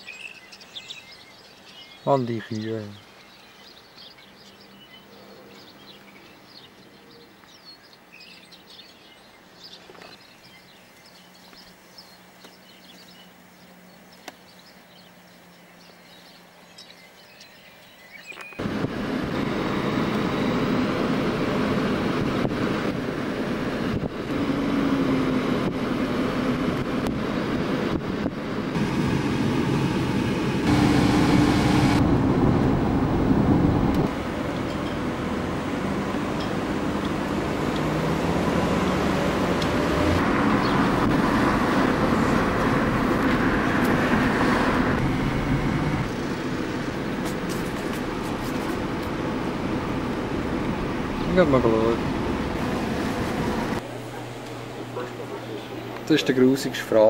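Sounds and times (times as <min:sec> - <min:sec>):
birds chirping: 0:00.0 - 0:18.6, 0:34.0 - 0:57.0
car road and wind noise: 0:18.4 - 0:53.8.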